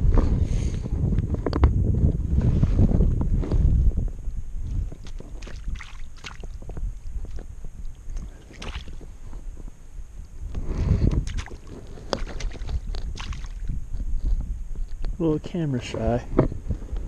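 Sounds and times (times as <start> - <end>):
wind rumbling on microphone: 0.0 - 17.0
water splashing and sloshing: 5.0 - 9.4, 11.1 - 13.8.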